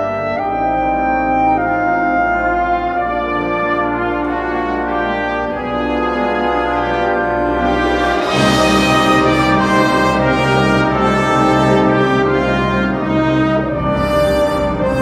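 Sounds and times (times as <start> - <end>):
brass held chords: 0.0 - 15.0
wind orchestra playing: 0.0 - 15.0.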